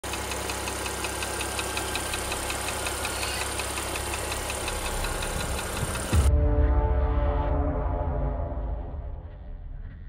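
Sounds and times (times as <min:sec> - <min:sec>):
rapid metallic ticking: 0:00.0 - 0:06.2
car engine idling: 0:00.0 - 0:06.3.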